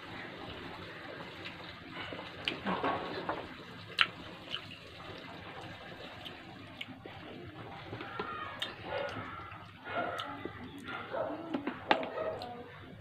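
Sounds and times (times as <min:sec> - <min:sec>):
wet chewing sounds: 0:03.9 - 0:04.8, 0:05.6 - 0:12.6.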